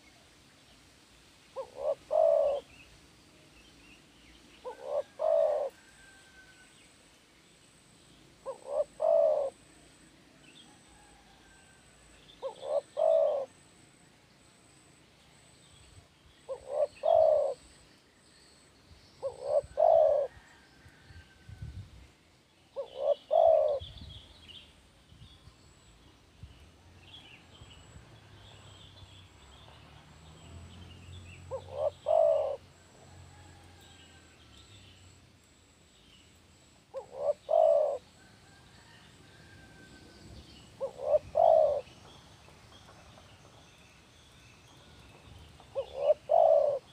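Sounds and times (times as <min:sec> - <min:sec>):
dove cooing: 0:01.6 - 0:02.7, 0:04.6 - 0:06.2, 0:08.4 - 0:09.7, 0:12.4 - 0:13.6, 0:16.5 - 0:17.7, 0:19.2 - 0:20.6, 0:22.8 - 0:24.0, 0:31.4 - 0:33.9, 0:36.9 - 0:39.9, 0:40.8 - 0:42.0, 0:45.6 - 0:46.9
small birds chirping: 0:40.5 - 0:46.9.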